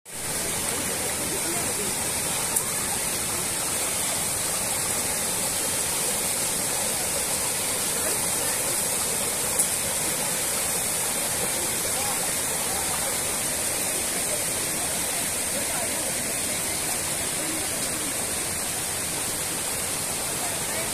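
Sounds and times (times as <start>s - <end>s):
waterfall rushing: 0.1s - 20.9s.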